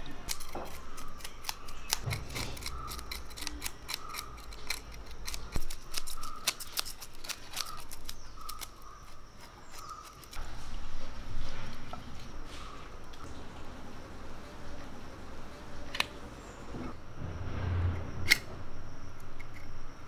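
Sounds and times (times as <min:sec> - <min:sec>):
knife scraping fish scales: 0:00.0 - 0:10.4.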